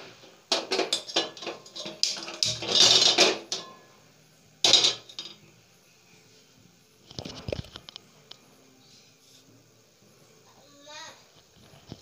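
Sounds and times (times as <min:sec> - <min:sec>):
pan scraping: 0:00.0 - 0:03.8
pan knocking: 0:00.0 - 0:03.9, 0:04.6 - 0:05.4.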